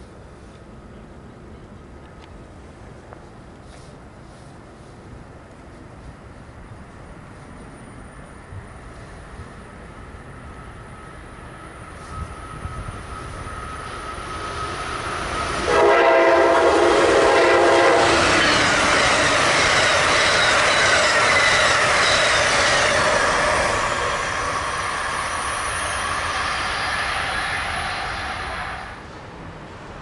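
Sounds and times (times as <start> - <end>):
train wheels rushing on rail: 1.5 - 30.0
train horn blast: 15.6 - 18.3.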